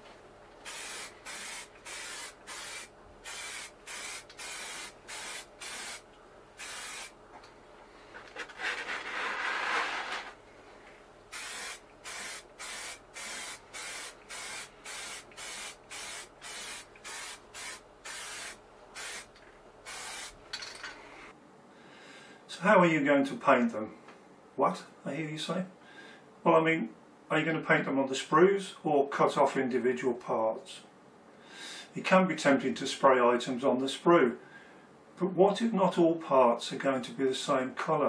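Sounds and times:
spray paint can hissing: 0:00.6 - 0:06.0, 0:06.6 - 0:07.1, 0:11.3 - 0:19.3, 0:19.9 - 0:20.4.

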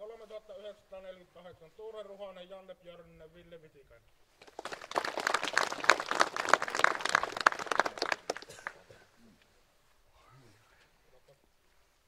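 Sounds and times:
small crowd clapping: 0:04.4 - 0:09.1.

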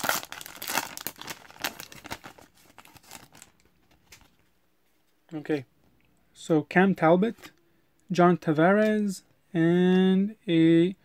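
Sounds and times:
foil wrapper crinkling and tearing: 0:00.0 - 0:04.2.

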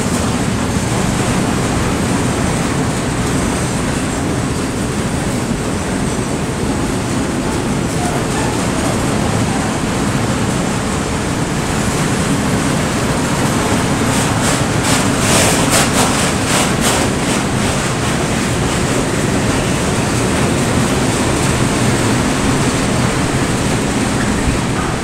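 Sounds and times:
train wheels rumbling on rails: 0:00.0 - 0:25.0
sharp clacks: 0:13.4 - 0:20.4.

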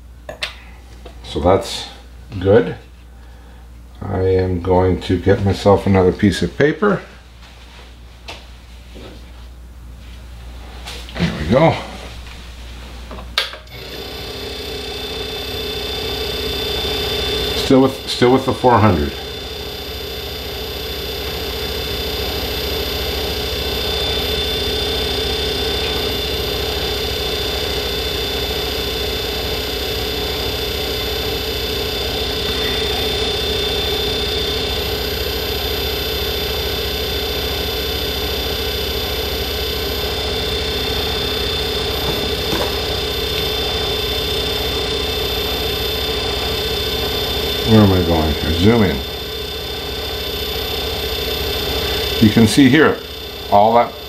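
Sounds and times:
lathe humming with high whine: 0:13.6 - 0:54.0.

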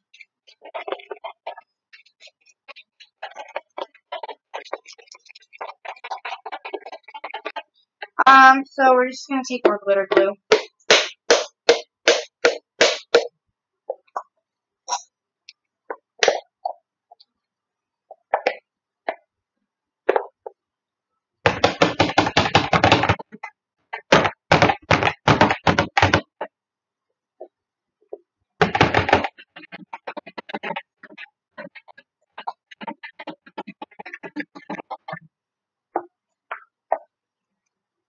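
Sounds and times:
knocks on plastic glue bottle: 0:21.5 - 0:23.3.

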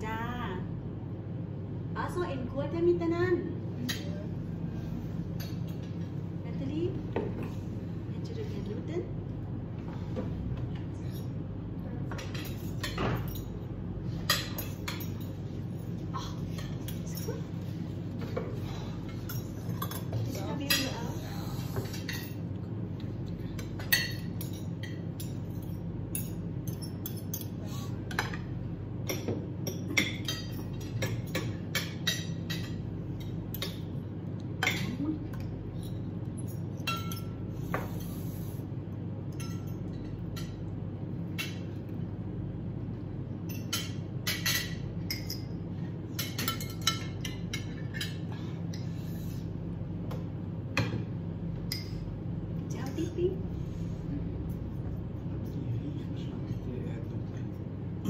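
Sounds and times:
steady low hum: 0:00.0 - 0:58.0
cutlery clinking on plates: 0:34.6 - 0:38.2, 0:43.5 - 0:48.9.

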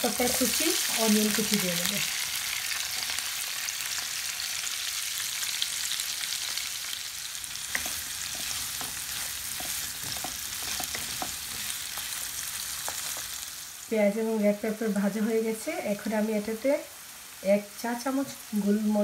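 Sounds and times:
vegetables sizzling in hot oil: 0:00.0 - 0:19.0
stirring clicks and knocks: 0:07.7 - 0:12.2.

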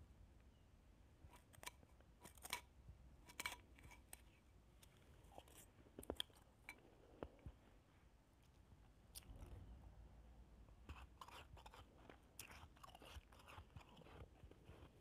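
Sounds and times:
spoon scooping shaved ice: 0:01.3 - 0:04.3, 0:10.9 - 0:15.0
chewing ice: 0:10.9 - 0:15.0.

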